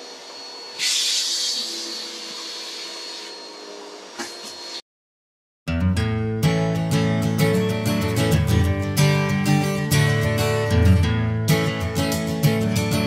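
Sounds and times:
vacuum cleaner whirring: 0.0s - 4.8s.

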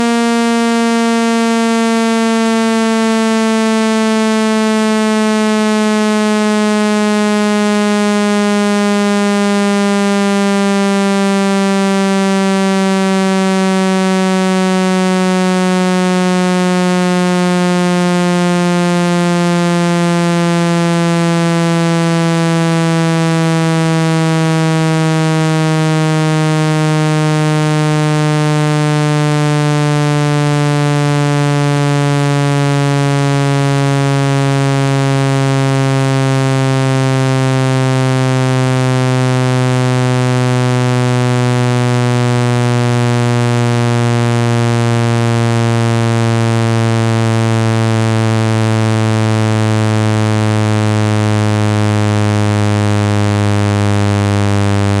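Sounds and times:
buzzy low tone gliding down: 0.0s - 55.0s.

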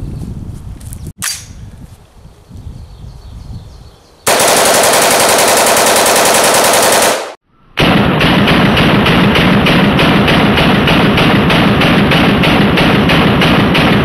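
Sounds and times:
rapid rifle fire: 4.3s - 14.0s
slowed down gunshots: 4.3s - 14.0s.

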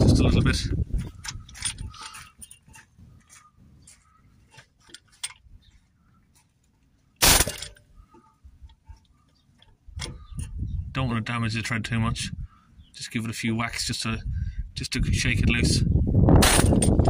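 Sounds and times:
pneumatic air hammer burst: 7.2s - 7.7s, 16.4s - 17.0s.

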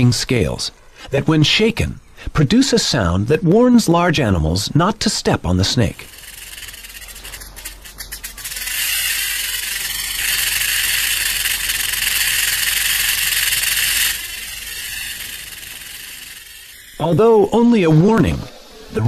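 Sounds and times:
rattlesnake rattle buzzing: 5.9s - 17.2s.

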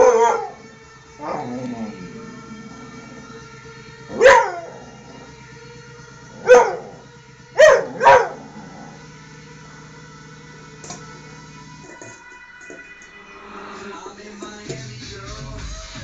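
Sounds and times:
puppy barking: 0.0s - 0.6s, 4.1s - 4.7s, 6.4s - 6.9s, 7.6s - 8.4s.

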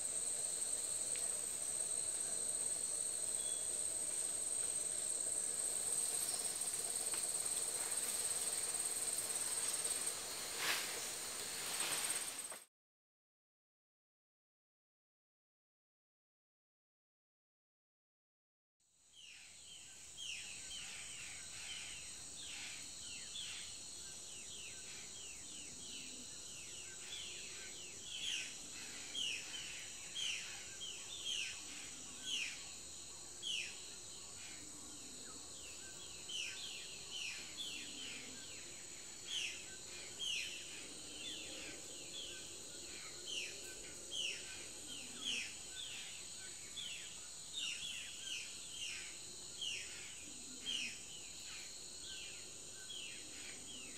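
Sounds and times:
high-pitched insect drone: 0.0s - 12.5s.

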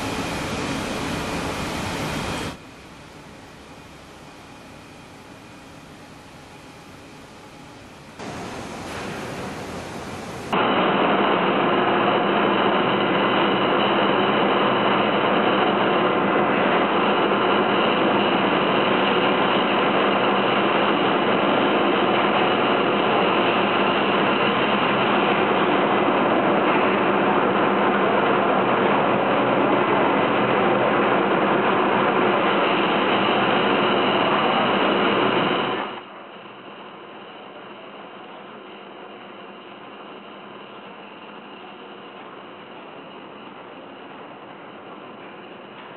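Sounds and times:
faint hum: 0.0s - 10.7s.

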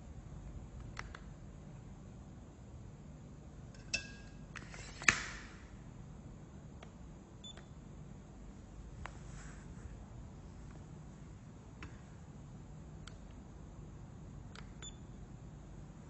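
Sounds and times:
tape measure blade retracting clack: 3.8s - 5.6s.

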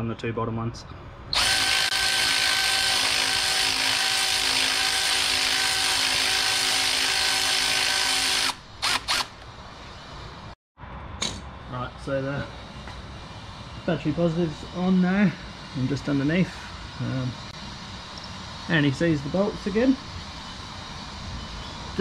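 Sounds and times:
electric ratchet running: 1.3s - 9.4s.

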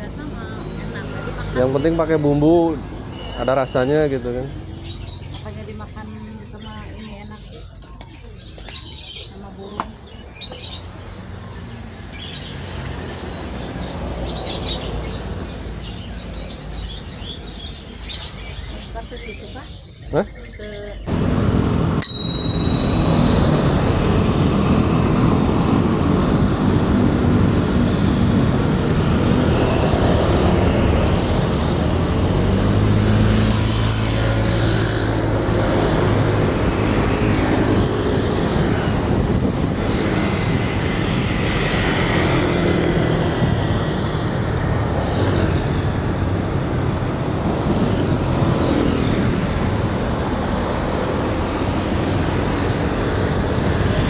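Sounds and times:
motorbikes and cars passing: 0.0s - 54.0s
wind rushing on microphone: 35.2s - 54.0s.

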